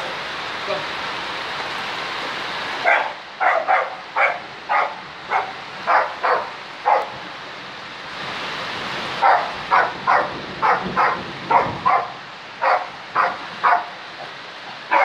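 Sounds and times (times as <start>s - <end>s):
heavy rain hissing: 0.0s - 15.0s
dog barking: 2.8s - 7.2s, 9.2s - 14.0s.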